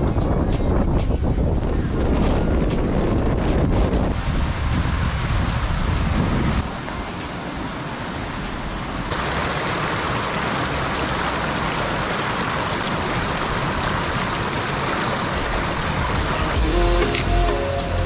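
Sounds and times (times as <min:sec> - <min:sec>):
stream rushing over rocks: 0:04.1 - 0:18.0.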